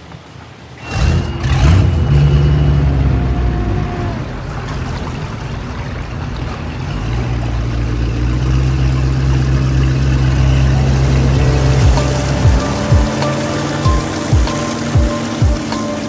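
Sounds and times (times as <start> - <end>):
outboard motor running: 2.9 - 16.0
music: 10.7 - 16.0.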